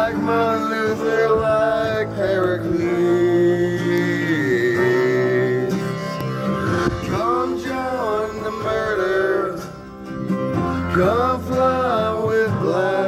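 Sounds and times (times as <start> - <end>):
man singing: 0.0 - 9.9, 10.8 - 13.0
guitar: 0.0 - 13.0.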